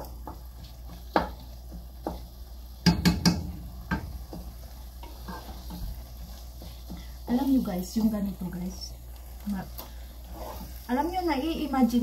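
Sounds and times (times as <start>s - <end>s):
meat sizzling: 0.0s - 12.0s
spatula scraping a metal pot: 4.6s - 8.0s, 9.9s - 10.9s.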